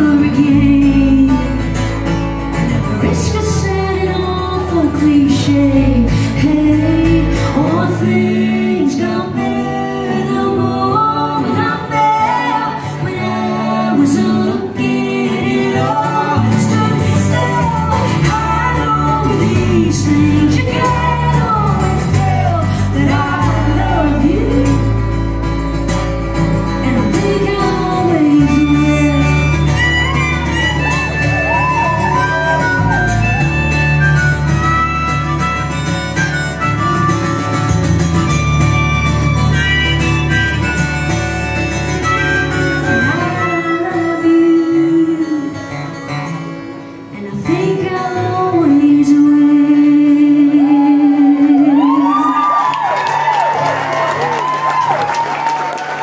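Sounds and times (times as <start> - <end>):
woman singing: 0.0 - 1.8, 2.8 - 25.0, 26.7 - 30.2, 42.8 - 45.9, 47.1 - 52.8
electric bass: 0.0 - 11.0, 16.4 - 43.5
strummed acoustic guitar: 0.0 - 50.2
harmonica high notes: 28.0 - 46.1.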